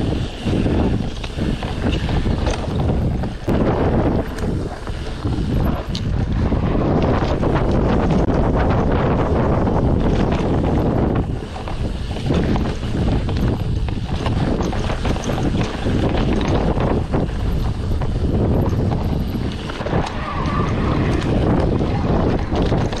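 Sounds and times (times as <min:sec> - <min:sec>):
bike knocks and rattles: 0:00.0 - 0:23.0
wind buffeting microphone: 0:00.0 - 0:23.0.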